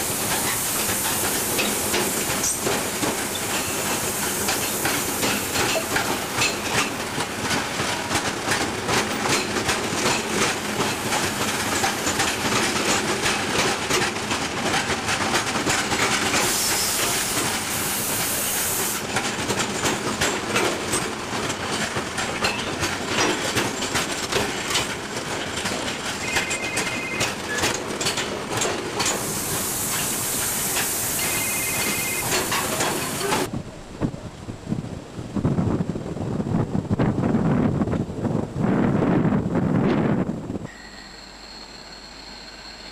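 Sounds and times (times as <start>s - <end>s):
freight train wheels clicking on rails: 0.0s - 33.5s.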